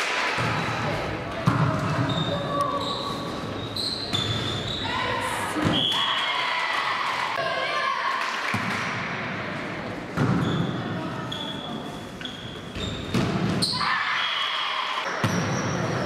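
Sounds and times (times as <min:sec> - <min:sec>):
voices and crowd noise: 0:00.0 - 0:16.0
shoe squeaks on court: 0:02.0 - 0:04.9, 0:10.4 - 0:13.8.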